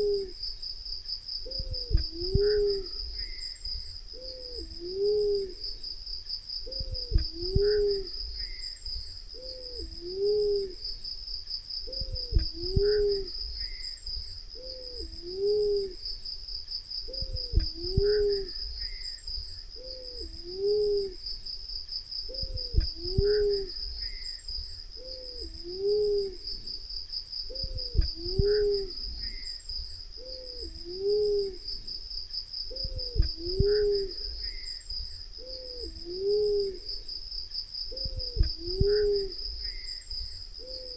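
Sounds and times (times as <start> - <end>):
dove cooing hoot: 0.0 - 0.4, 1.4 - 3.5, 4.1 - 5.8, 6.6 - 8.6, 9.3 - 10.9, 11.8 - 13.8, 14.6 - 16.0, 17.1 - 19.0, 19.8 - 21.2, 22.3 - 24.2, 25.0 - 26.8, 27.5 - 29.4, 30.2 - 31.7, 32.7 - 34.7, 35.4 - 37.0, 37.9 - 39.9, 40.6 - 40.9
high-pitched insect trill: 0.0 - 40.9.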